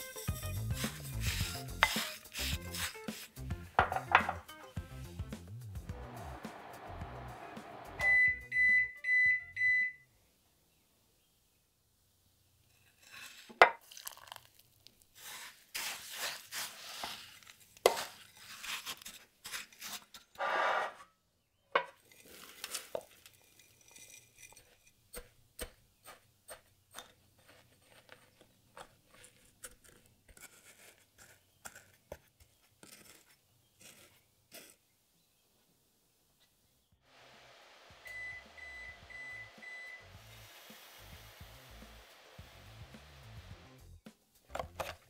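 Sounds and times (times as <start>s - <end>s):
crumbs stirred in glass bowl: 0.0s - 4.3s, 12.8s - 20.0s, 22.0s - 32.0s.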